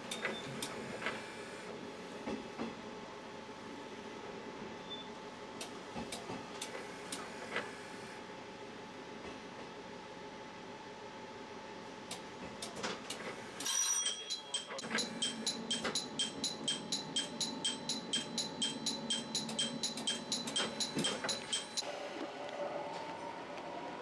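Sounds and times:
level crossing bell ringing: 13.6s - 21.8s.

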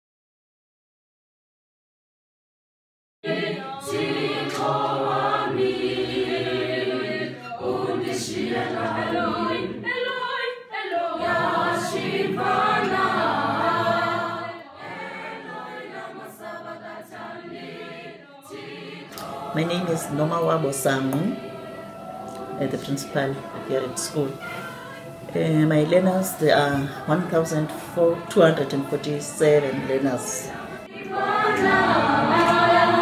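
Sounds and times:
group singing a cappella: 3.2s - 33.0s.

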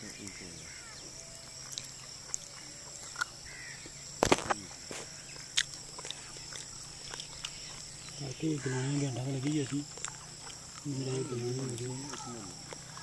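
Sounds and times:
bird chirps: 0.0s - 13.0s
insects droning: 0.0s - 13.0s.

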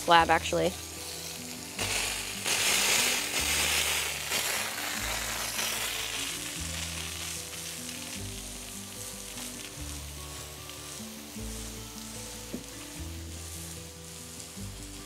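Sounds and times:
background music with low notes: 0.0s - 15.0s
hose spray hitting wood: 1.8s - 9.8s, 12.3s - 13.1s.

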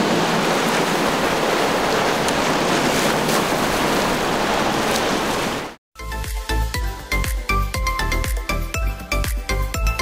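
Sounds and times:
water spray and wind rushing: 0.0s - 5.8s
music with steady beat: 6.0s - 10.0s.

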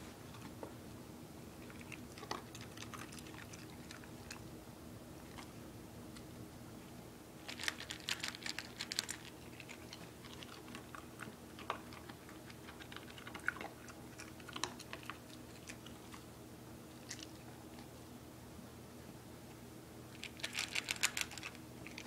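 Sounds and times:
dog crunching dry kibble: 1.6s - 4.4s, 7.4s - 16.3s, 16.9s - 17.9s, 20.1s - 22.0s.

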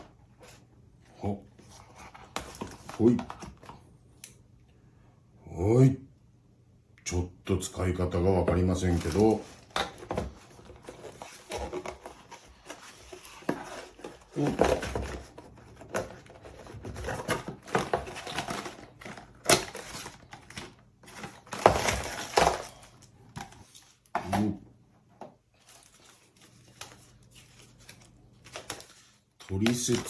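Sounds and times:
paper and plastic rustling: 1.6s - 3.9s, 8.5s - 24.5s, 25.5s - 30.0s.

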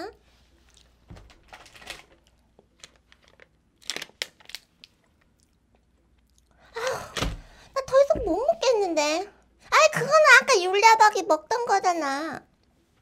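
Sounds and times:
plastic wrappers crinkling: 1.1s - 5.1s.

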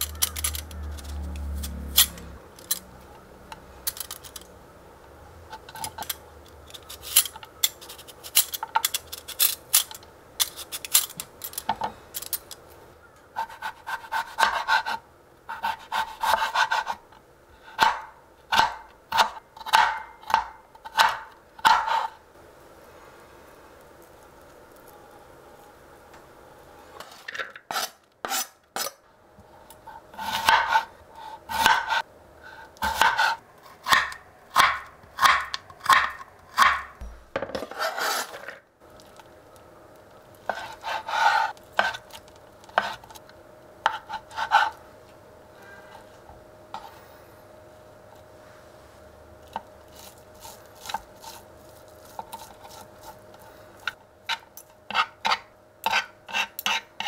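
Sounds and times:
forks clicking and scraping: 0.0s - 2.9s, 3.8s - 4.5s, 5.6s - 12.6s
knife chopping on cutting board: 17.8s - 22.1s, 31.5s - 32.0s, 32.8s - 38.0s.

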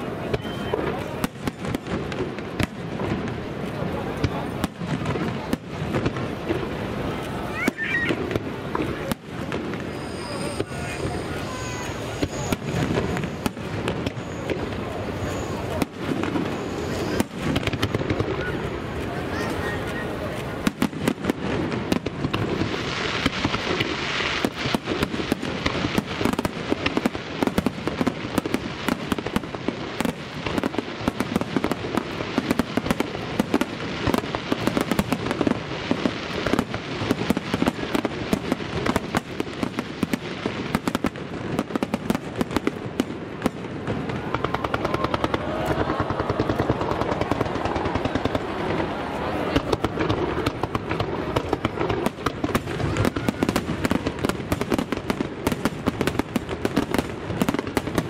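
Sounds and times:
fireworks crackling: 0.0s - 58.0s
firework shell bursts: 7.7s - 18.4s.

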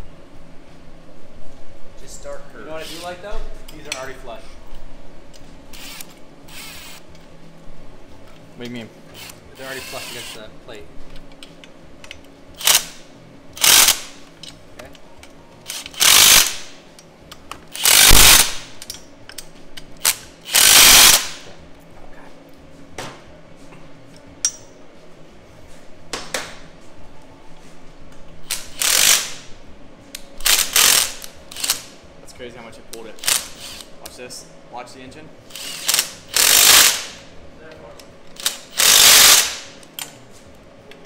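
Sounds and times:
impact wrench bursts: 2.7s - 3.2s, 5.7s - 7.0s, 9.2s - 10.4s, 12.6s - 13.0s, 13.6s - 14.2s, 15.6s - 16.8s, 17.7s - 18.8s, 20.0s - 21.5s, 28.4s - 29.5s, 30.4s - 31.9s, 33.2s - 33.9s, 35.5s - 37.3s, 38.4s - 39.8s.

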